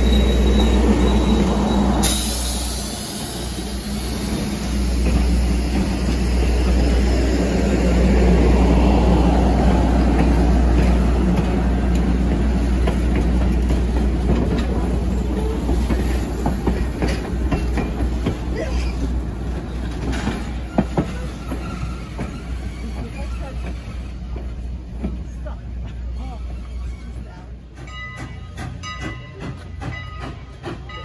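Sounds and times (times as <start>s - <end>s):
faint wheel squeal: 0.0s - 2.7s, 26.2s - 27.5s
train wheels rumbling on rails: 0.0s - 31.0s.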